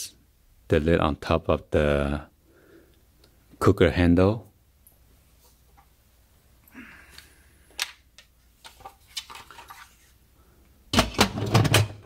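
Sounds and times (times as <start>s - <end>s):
pot lid clunking and rattling: 10.9s - 12.0s.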